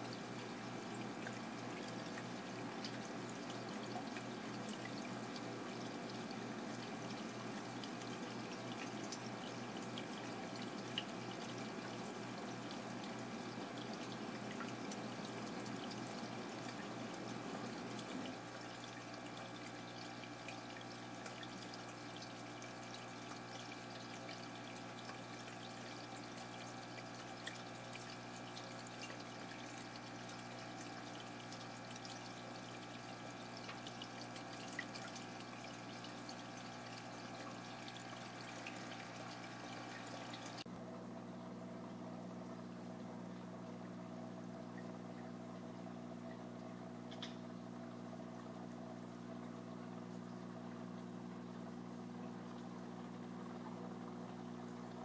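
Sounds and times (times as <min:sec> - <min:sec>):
water trickling and splashing: 0:00.0 - 0:40.7
hum of pumps: 0:00.0 - 0:55.0.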